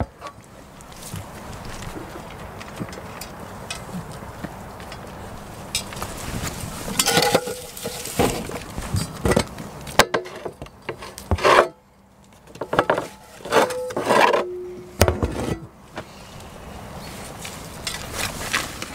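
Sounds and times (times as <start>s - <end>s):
metal feed pan clanking: 7.0s - 8.6s, 12.6s - 15.7s.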